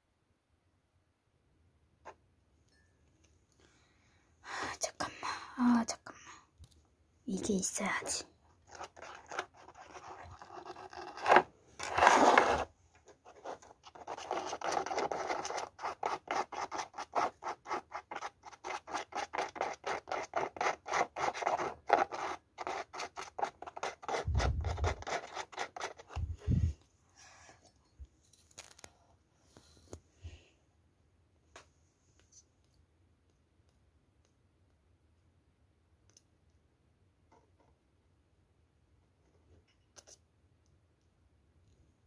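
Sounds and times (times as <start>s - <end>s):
scratching and rubbing strokes: 8.0s - 26.8s.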